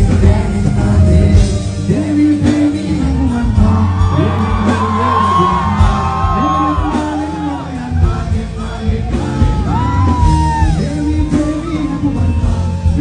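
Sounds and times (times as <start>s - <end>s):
heavy steady bass: 0.0s - 13.0s
person singing: 0.0s - 13.0s
audience shouting and whooping: 2.9s - 12.8s.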